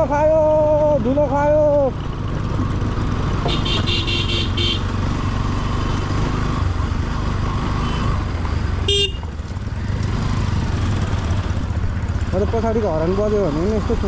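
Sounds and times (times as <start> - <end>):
motorcycle engine running: 0.0 - 14.0
motorcycle horn toot: 3.5 - 4.9, 8.9 - 9.3.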